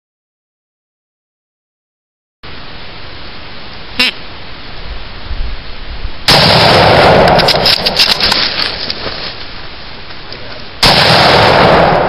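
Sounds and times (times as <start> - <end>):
rifle shot: 6.3 - 8.7, 10.8 - 12.0.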